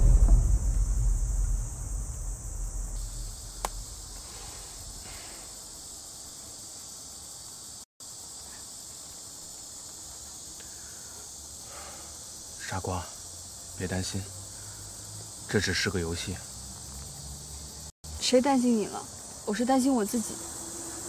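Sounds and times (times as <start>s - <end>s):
deep rumble: 0.0s - 5.2s
insects chirring: 0.0s - 21.0s.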